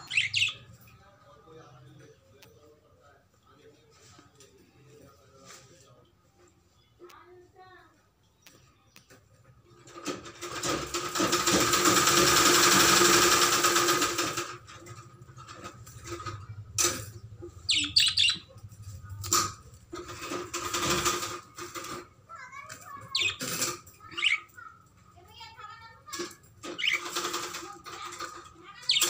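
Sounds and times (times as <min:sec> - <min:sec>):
high budgie chirps: 0:00.0 - 0:01.0, 0:17.4 - 0:18.7, 0:22.5 - 0:25.8, 0:26.6 - 0:27.4, 0:28.1 - 0:29.0
budgies flapping wings: 0:10.0 - 0:14.6, 0:20.0 - 0:22.0, 0:22.7 - 0:24.4, 0:26.2 - 0:29.0.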